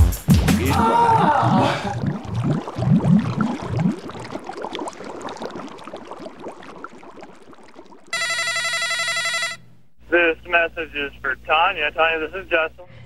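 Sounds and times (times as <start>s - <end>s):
water bubbling and gurgling: 0.7s - 8.2s.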